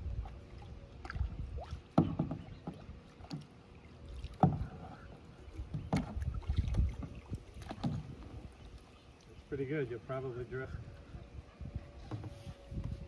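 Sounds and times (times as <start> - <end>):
wind on microphone: 0.0 - 2.6, 5.4 - 8.8, 10.6 - 13.0
paddle splashes: 0.0 - 9.5
water rumble: 0.0 - 13.0.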